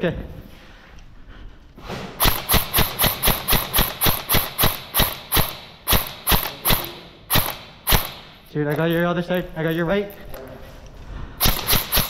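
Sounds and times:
airsoft rifle shots: 2.2s - 8.5s, 11.4s - 12.0s.

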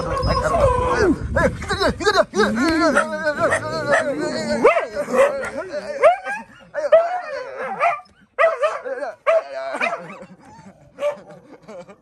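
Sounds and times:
dogs yipping and whining: 0.0s - 1.1s, 3.0s - 8.9s.

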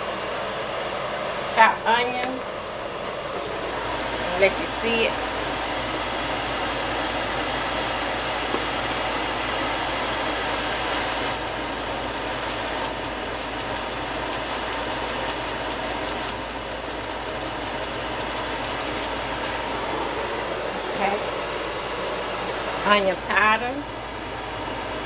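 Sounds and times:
food sizzling in a pot: 3.4s - 20.3s.

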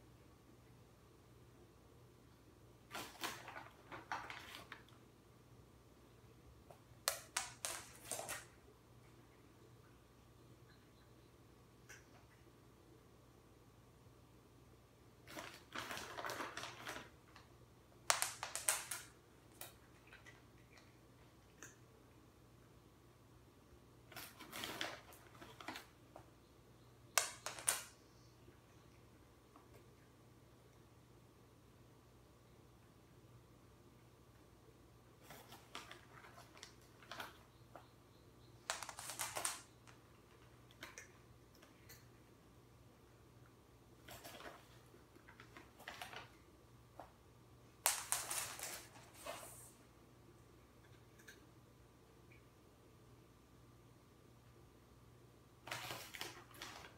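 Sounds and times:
cat paws clicking on hard floor: 7.1s - 8.5s, 18.1s - 20.3s, 47.9s - 49.7s
cat crunching dry treats: 15.3s - 17.5s.

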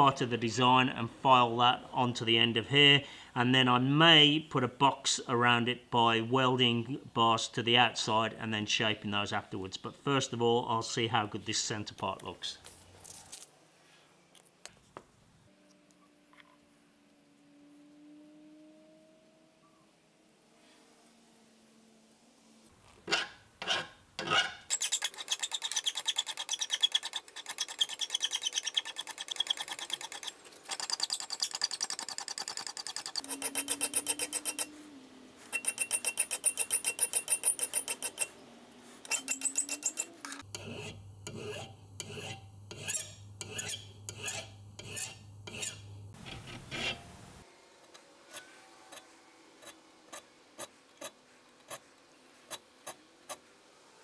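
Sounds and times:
hand file rasping on metal: 23.1s - 34.8s, 35.4s - 38.4s, 39.0s - 47.0s.

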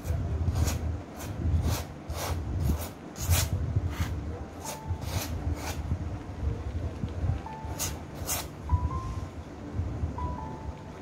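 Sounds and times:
palette knife scraping canvas: 0.5s - 5.8s.

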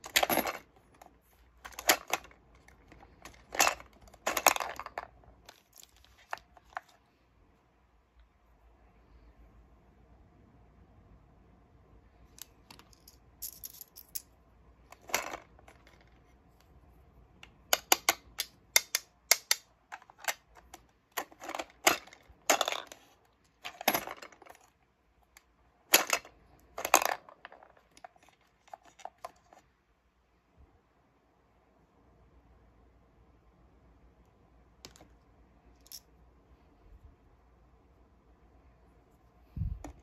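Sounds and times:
coins clinking: 0.0s - 0.7s, 12.8s - 14.3s
gumball machine clicking and rattling: 1.6s - 6.8s, 17.4s - 24.7s.

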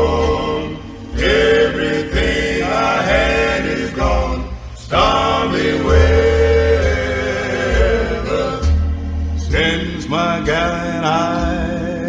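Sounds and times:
low bass line: 0.0s - 12.0s
song with held vocal notes: 0.0s - 12.0s.

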